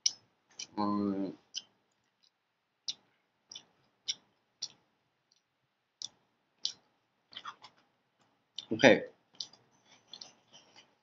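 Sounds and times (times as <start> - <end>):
person chewing food: 1.4 - 8.7, 9.4 - 11.0.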